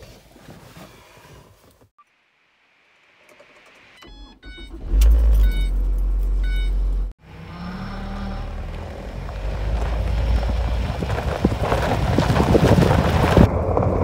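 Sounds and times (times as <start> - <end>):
car engine cranking and idling: 3.2 - 14.0
dashboard chime beeping: 4.0 - 7.0
car engine revving pulling away: 4.6 - 14.0.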